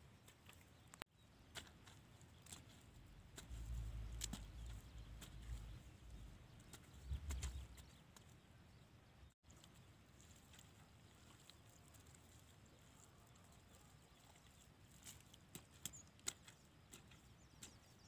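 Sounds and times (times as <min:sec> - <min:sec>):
hands digging in wet mud: 0:01.5 - 0:08.3.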